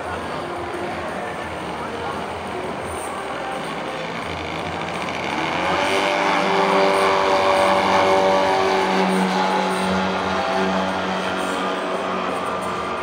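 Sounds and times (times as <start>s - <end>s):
model plane engine revving: 2.7s - 13.0s.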